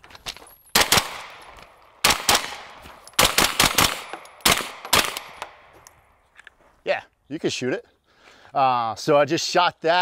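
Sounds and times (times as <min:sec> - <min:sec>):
carbine gunshots: 0:00.7 - 0:05.7.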